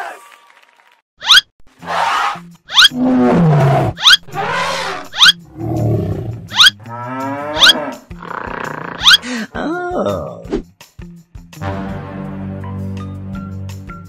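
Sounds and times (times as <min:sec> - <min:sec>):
cartoon animal roars and calls: 0:01.3 - 0:09.3.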